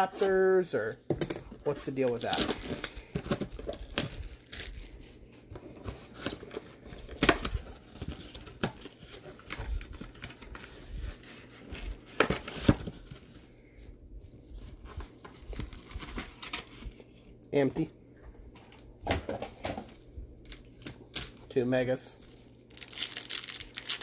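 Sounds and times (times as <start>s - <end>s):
cardboard rustling and scraping: 1.7s - 13.6s.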